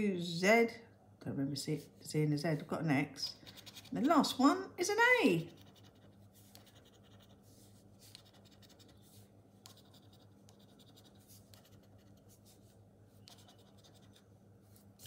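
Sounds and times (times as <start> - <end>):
scratching a scratch card: 3.4 - 4.2, 5.5 - 7.4, 8.0 - 12.6, 13.2 - 14.3.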